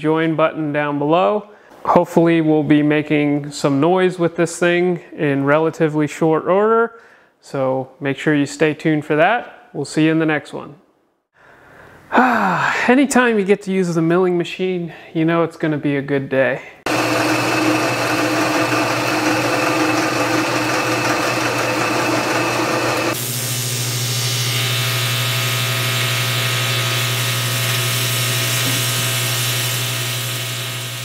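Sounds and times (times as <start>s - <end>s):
milling machine cutting metal: 16.9s - 31.0s
welding arc buzzing: 16.9s - 31.0s.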